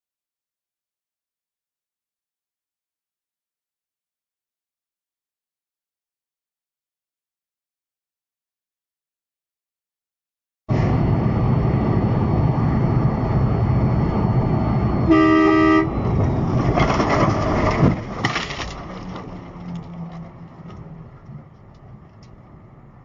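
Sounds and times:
truck road and engine noise: 10.7 - 23.0
truck horn blast: 15.1 - 16.0.

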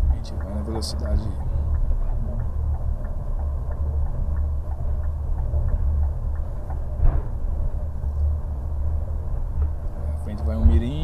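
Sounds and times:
bus engine and tyres rumbling: 0.0 - 11.0
faint regular ticking: 0.0 - 11.0
thump: 7.0 - 7.4.

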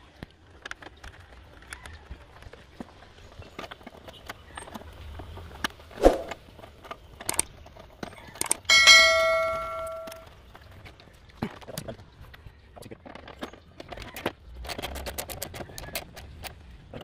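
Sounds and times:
bell chime sound effect: 8.7 - 10.2.

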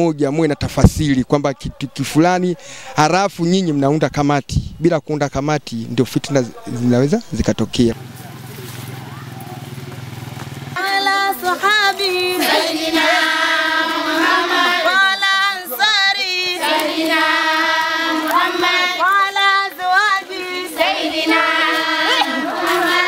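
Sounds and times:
women singing in unison: 10.8 - 23.0.

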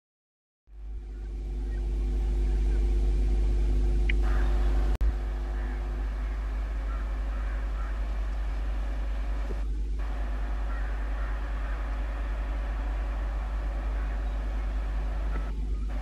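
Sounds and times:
diesel train rumbling: 0.7 - 16.0
crows cawing: 4.2 - 16.0.

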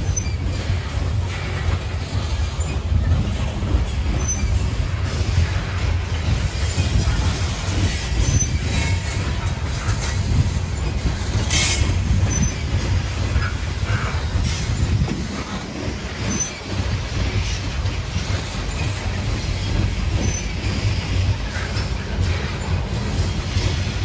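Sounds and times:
high wheel squeals: 0.0 - 0.6, 4.1 - 5.5, 8.1 - 9.2, 10.7 - 12.8, 16.1 - 16.8
train wheels rumbling on rail: 0.0 - 24.0.

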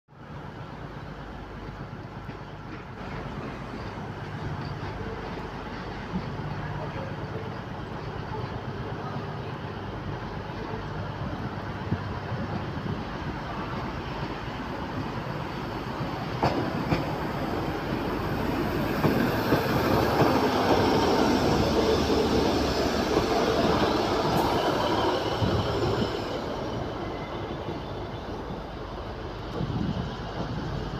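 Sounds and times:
diesel train passing: 0.2 - 30.9.

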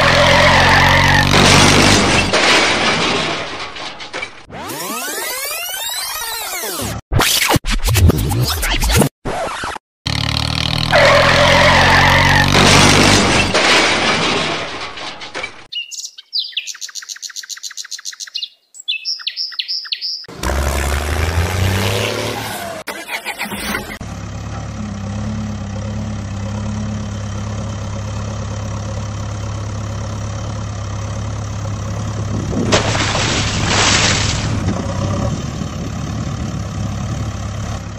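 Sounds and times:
engine revving: 0.0 - 2.3, 10.1 - 13.6, 20.3 - 37.9.

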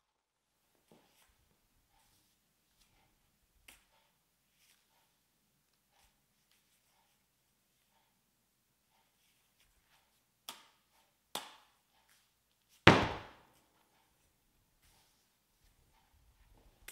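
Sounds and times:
knocks on hollow steel sphere: 12.9 - 13.4.

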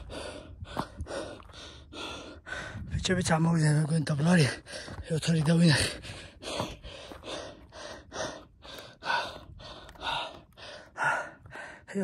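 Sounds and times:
man breathing heavily: 0.0 - 3.0, 4.4 - 12.0.

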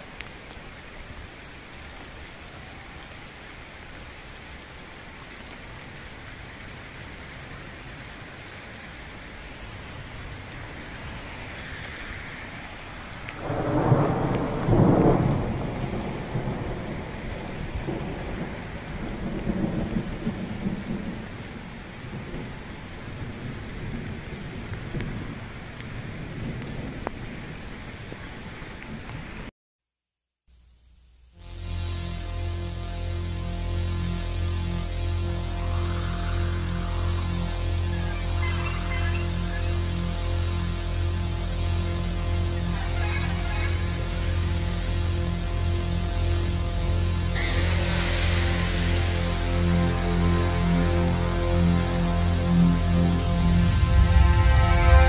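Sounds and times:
steady rain falling: 0.0 - 29.5, 30.5 - 55.0
thunder rumbling: 9.2 - 29.1, 34.2 - 55.0.

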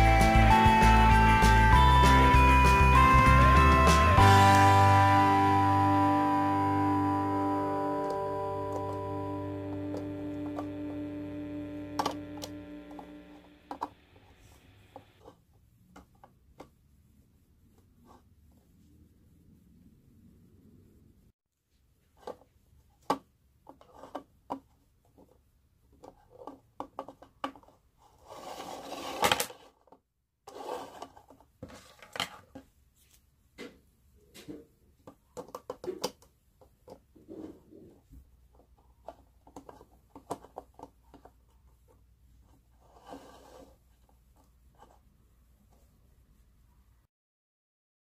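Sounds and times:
rustling plastic scrape: 27.6 - 29.8, 30.5 - 32.6, 42.7 - 44.1.

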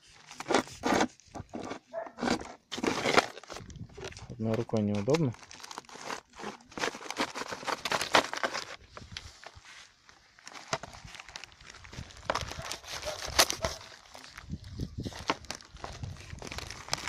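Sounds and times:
plastic bag crinkling: 0.0 - 17.0
knife cutting plastic bag: 0.2 - 3.6, 5.0 - 8.8, 12.2 - 14.3.

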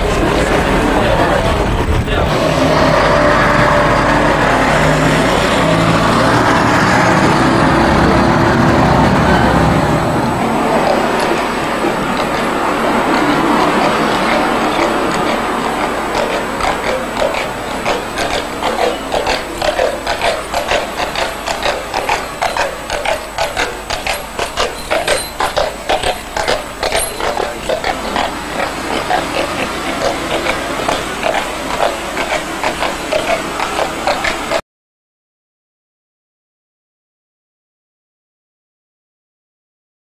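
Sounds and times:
horse hooves clopping on tarmac: 10.4 - 34.6.

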